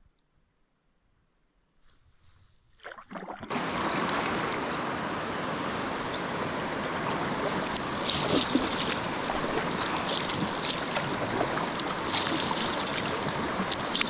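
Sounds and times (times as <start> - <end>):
water splashes: 2.8 - 14.0
whitewater rushing: 3.5 - 14.0.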